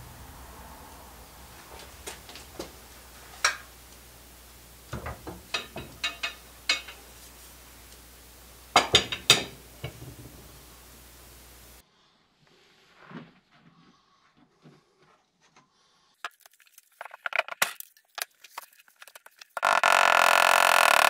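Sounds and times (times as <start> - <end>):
metal hand tools clinking: 5.5 - 7.1.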